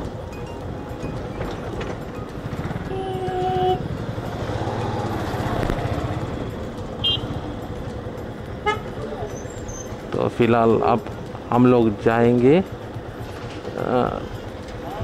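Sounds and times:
motorcycle engine running: 0:00.0 - 0:15.0
horn sounding: 0:07.0 - 0:07.4, 0:08.6 - 0:08.9.

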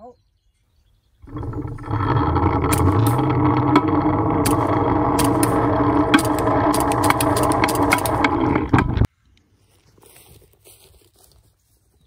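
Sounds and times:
pulley carriage whirring on rope: 0:01.2 - 0:09.1
sharp clicks and rattles: 0:01.2 - 0:09.1.

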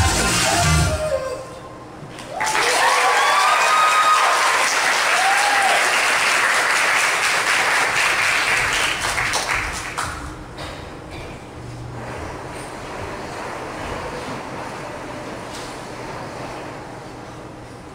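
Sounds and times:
dance music: 0:00.0 - 0:01.4
whoops from audience: 0:02.2 - 0:06.0
audience applauding: 0:02.2 - 0:10.3.

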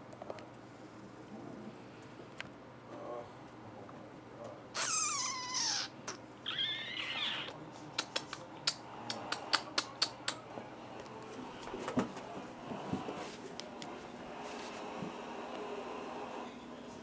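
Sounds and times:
cat meowing: 0:04.8 - 0:07.6.

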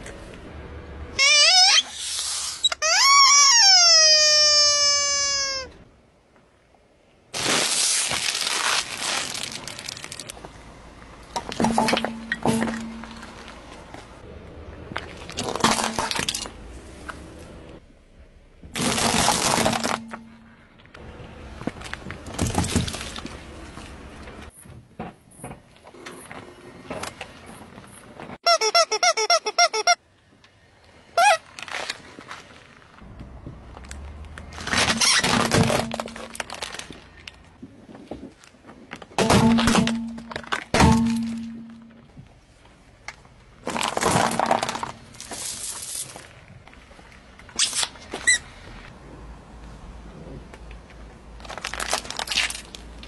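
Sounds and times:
squeaky toy squealing: 0:01.2 - 0:02.0, 0:02.6 - 0:05.8, 0:28.4 - 0:30.0, 0:31.2 - 0:31.4
tyre crunching rubber toy: 0:01.2 - 0:05.8, 0:28.4 - 0:30.0, 0:31.1 - 0:32.0, 0:34.4 - 0:37.0
walnuts cracking under tyre: 0:18.7 - 0:20.4, 0:33.7 - 0:37.6, 0:43.0 - 0:46.8, 0:51.4 - 0:53.0
drink cartons crushed: 0:18.8 - 0:20.3, 0:34.6 - 0:36.9, 0:43.6 - 0:45.6
plastic cups cracking: 0:43.6 - 0:46.1.

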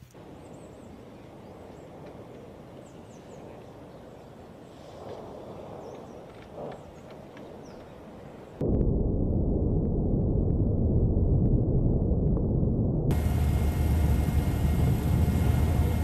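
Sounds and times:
steady low rumbling: 0:08.6 - 0:16.0.

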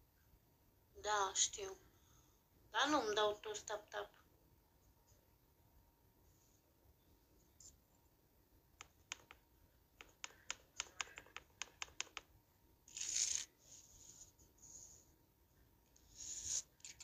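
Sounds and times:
fingernails tapping touchscreen: 0:08.8 - 0:09.4, 0:10.0 - 0:12.4.

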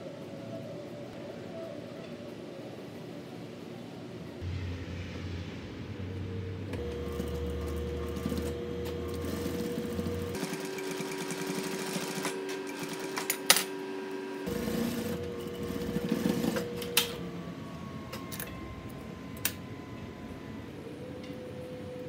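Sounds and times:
sewing machine running: 0:06.7 - 0:18.5.

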